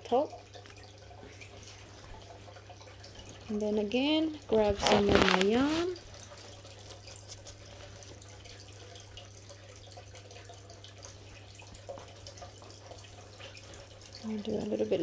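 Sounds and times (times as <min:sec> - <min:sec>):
faint background hum: 0:00.0 - 0:15.0
water-like trickling hiss: 0:04.4 - 0:15.0
hands rustling yarn and leaves: 0:04.6 - 0:06.1.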